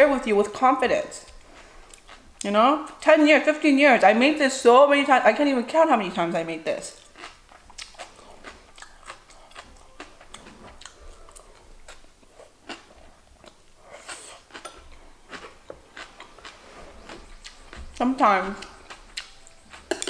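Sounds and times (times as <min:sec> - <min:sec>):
person chewing crunchy food: 0:01.3 - 0:02.4, 0:07.0 - 0:20.0.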